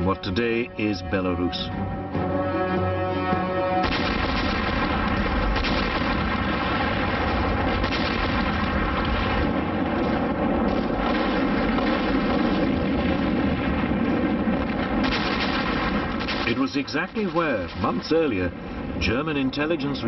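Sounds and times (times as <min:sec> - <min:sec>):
music: 0:00.0 - 0:05.3
artillery guns firing: 0:03.8 - 0:18.6.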